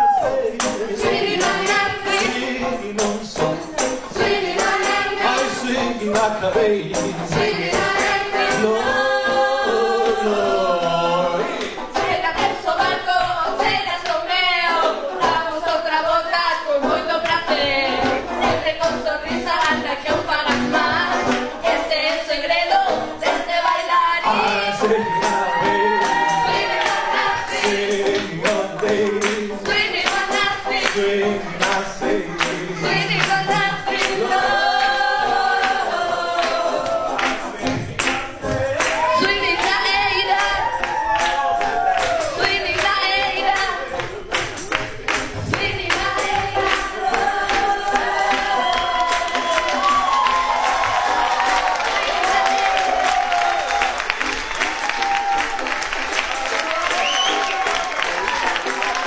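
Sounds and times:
group singing a swing song: 0.0 - 59.0.

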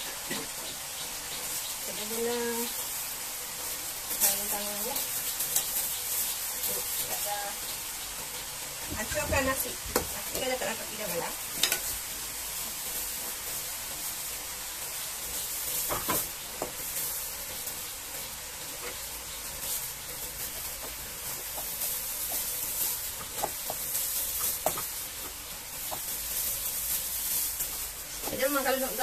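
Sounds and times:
vegetables sizzling in a wok: 0.0 - 29.0.

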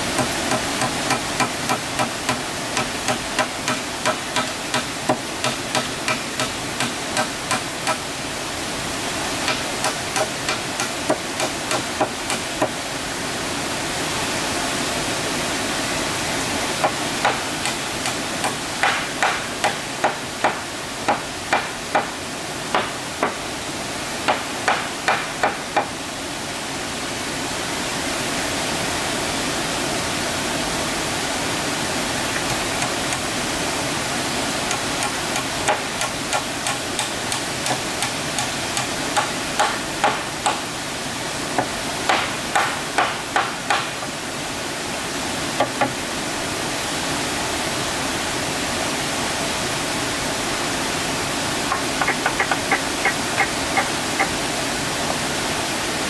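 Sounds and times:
hand tool striking wood: 0.2 - 8.0, 9.4 - 12.8, 16.8 - 22.1, 22.7 - 23.4, 24.3 - 25.9, 32.4 - 33.2, 34.7 - 40.6, 41.6 - 44.1, 51.7 - 54.3.

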